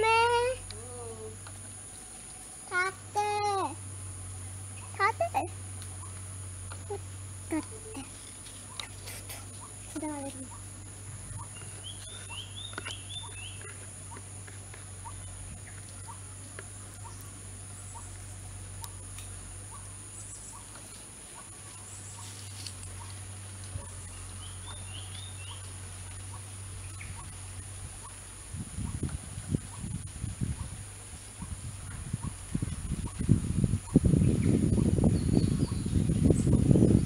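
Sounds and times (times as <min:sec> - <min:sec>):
short chirping calls: 0:04.7 - 0:14.2
faint small ticks: 0:05.7 - 0:07.0, 0:08.2 - 0:10.7, 0:18.8 - 0:19.9.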